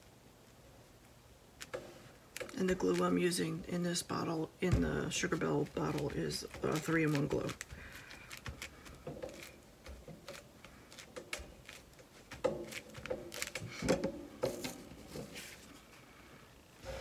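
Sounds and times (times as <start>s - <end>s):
paper handling clicks: 1.6s - 3.3s, 5.2s - 13.8s
tissue rustling on paper: 5.1s - 13.8s.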